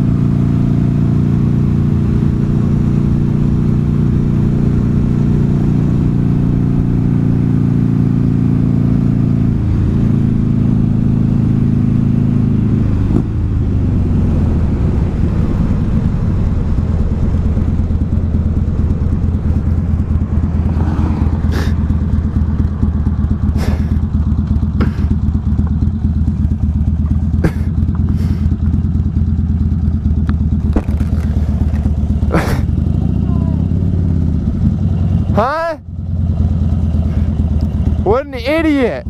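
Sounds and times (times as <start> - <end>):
motorcycle engine rumbling: 0.0 - 39.0.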